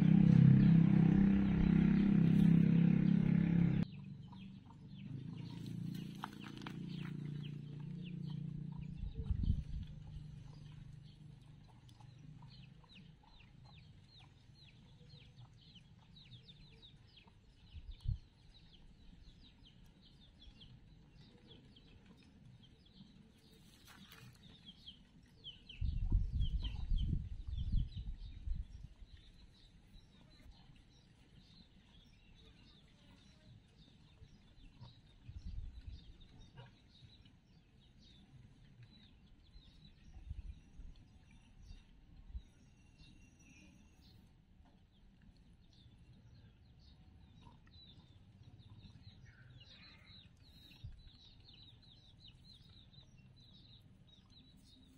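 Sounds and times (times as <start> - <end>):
birds chirping faintly: 0.0 - 54.9
wind buffeting microphone: 6.8 - 10.8, 17.1 - 18.7, 25.6 - 29.7, 35.1 - 36.2.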